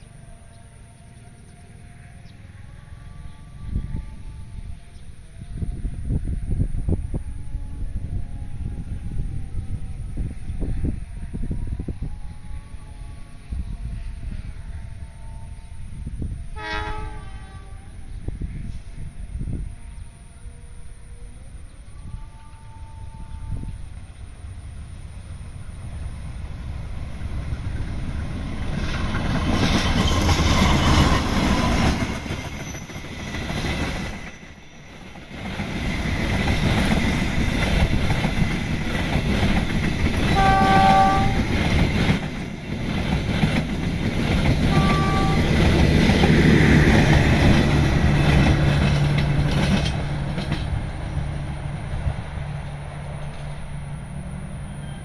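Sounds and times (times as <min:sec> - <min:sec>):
train horn: 0:00.0 - 0:26.2, 0:27.4 - 0:34.8, 0:39.3 - 0:42.2, 0:44.2 - 0:49.9
train wheels on rails: 0:23.4 - 0:55.0.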